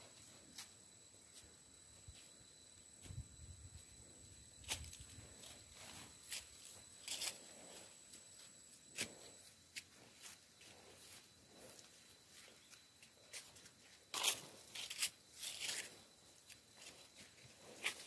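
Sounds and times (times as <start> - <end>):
footsteps in grass and leaves: 4.5 - 18.0.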